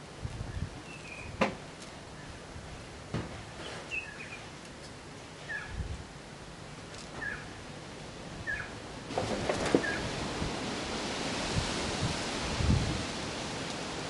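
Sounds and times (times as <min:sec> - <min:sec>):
bird chirping: 0:03.9 - 0:04.5, 0:07.2 - 0:07.5, 0:08.4 - 0:08.8.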